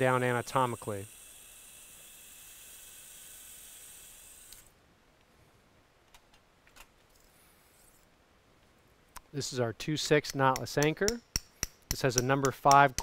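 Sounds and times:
power drill high whine: 0.0 - 4.7.

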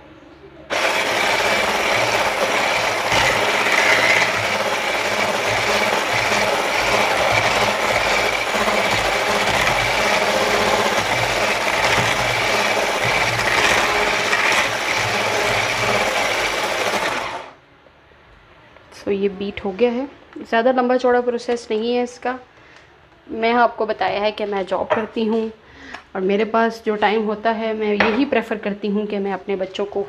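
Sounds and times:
electric hand mixer whisking: 0.7 - 17.6.

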